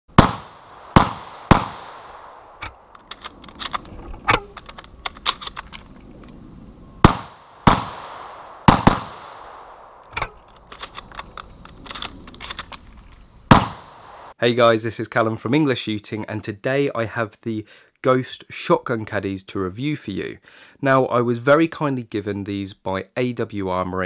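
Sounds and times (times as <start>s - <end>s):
shotgun shots: 0.1s - 2.7s, 7.0s - 10.4s, 13.5s - 14.4s
shells clicking while loading: 2.6s - 6.4s, 10.0s - 13.2s.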